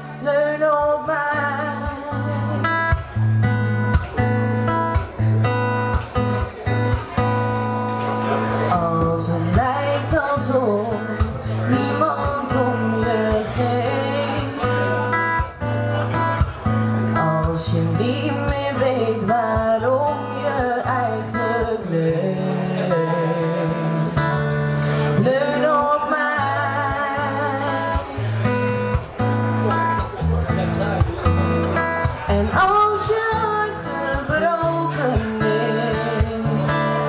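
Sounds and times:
woman singing pop ballad: 0.0 - 2.8, 8.7 - 15.0, 17.2 - 24.3, 24.9 - 28.1, 32.3 - 37.0
acoustic guitar: 0.0 - 37.0.

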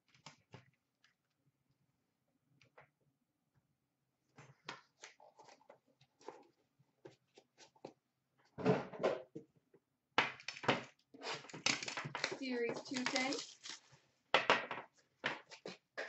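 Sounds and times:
cards clicking and tapping: 10.2 - 13.8.

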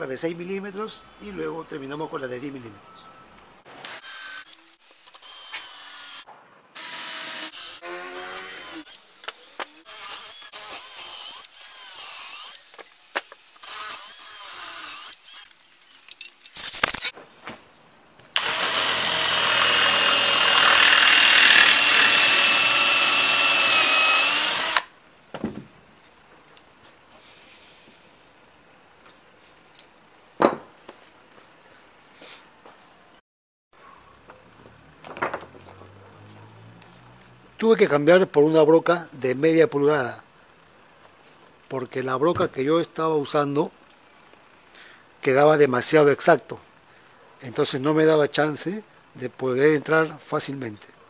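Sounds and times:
cordless drill whining: 6.8 - 12.9, 18.4 - 24.9.

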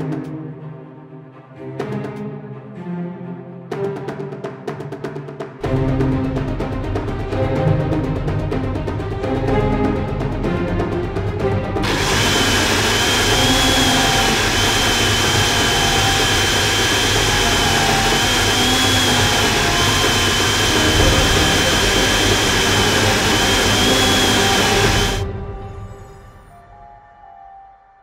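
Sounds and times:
blender motor whine: 11.8 - 25.2.

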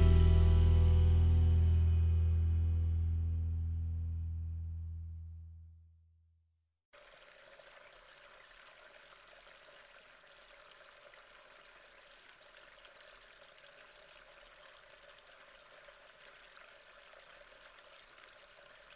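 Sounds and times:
low hum: 0.0 - 5.8.

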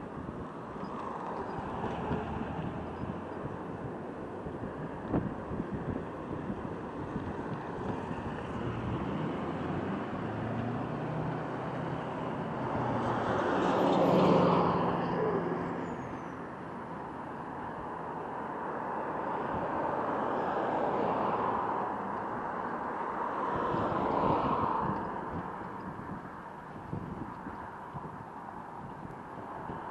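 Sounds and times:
road traffic passing: 0.0 - 29.9.

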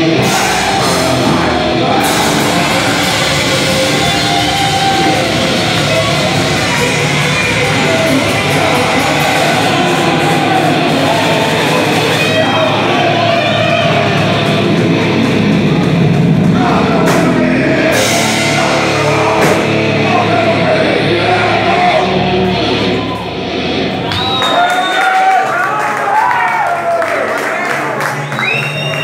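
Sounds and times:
person singing: 0.0 - 23.2
distorted electric guitars: 0.0 - 24.7
drum kit: 0.0 - 24.7.

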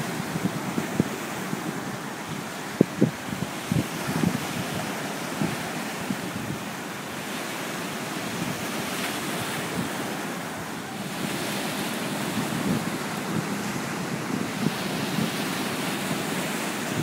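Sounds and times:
wind thumps on microphone: 0.0 - 6.6, 12.3 - 17.0
surf breaking on rocks: 0.0 - 17.0.

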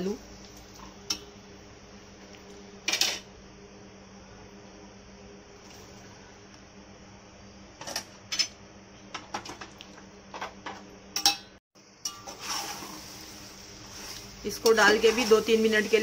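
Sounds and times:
low steady hum: 0.0 - 12.4
spatula scraping metal pot: 12.1 - 13.0.

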